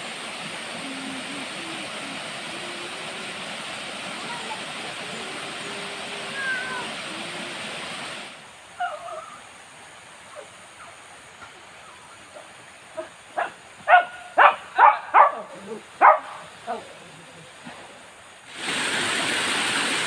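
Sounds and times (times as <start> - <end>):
small waterfall rushing: 0.0 - 20.0
dog barking: 13.0 - 16.8.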